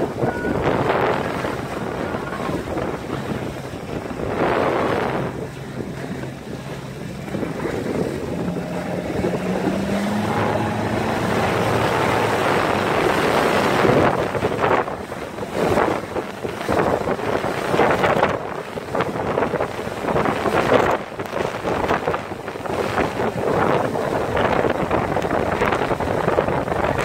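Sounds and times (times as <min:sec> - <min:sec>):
outboard motor: 0:00.0 - 0:27.0
wake rushing: 0:00.0 - 0:27.0
wind buffeting microphone: 0:00.0 - 0:27.0.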